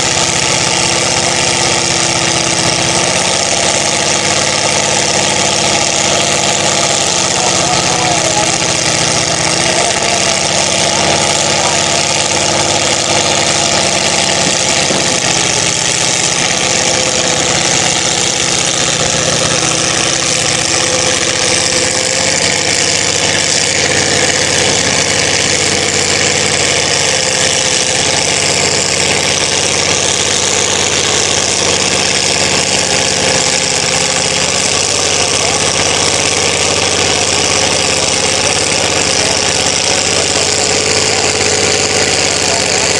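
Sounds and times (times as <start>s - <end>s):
truck engine running: 0.0s - 42.9s.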